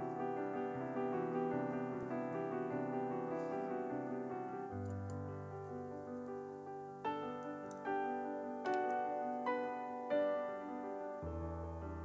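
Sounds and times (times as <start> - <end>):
piano chords: 0.0 - 12.0.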